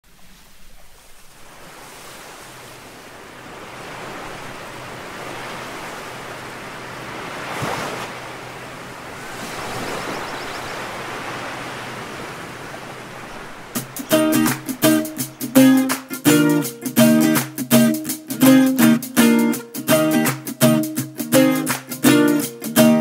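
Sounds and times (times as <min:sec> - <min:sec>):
waves breaking on beach: 0:00.1 - 0:18.3.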